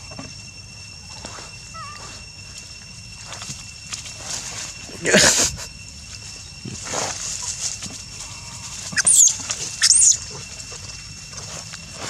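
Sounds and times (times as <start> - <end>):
baby monkey screaming: 1.7 - 2.2, 8.6 - 10.9.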